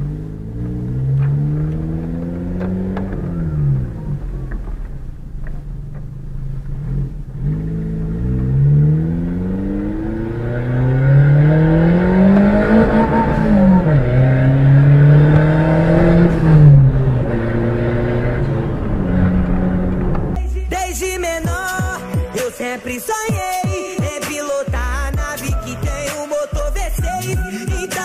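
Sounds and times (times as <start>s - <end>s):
car engine accelerating: 0.0s - 21.8s.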